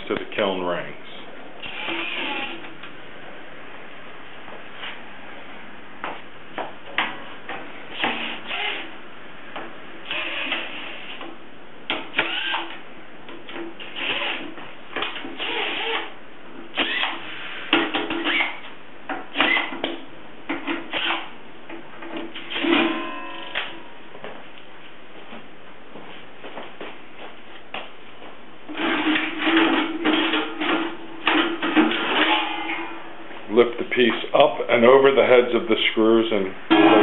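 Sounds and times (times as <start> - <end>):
cordless drill bursts: 1.6 - 2.6, 8.0 - 8.9, 10.1 - 11.2, 12.2 - 12.7, 15.4 - 16.1, 16.8 - 17.6.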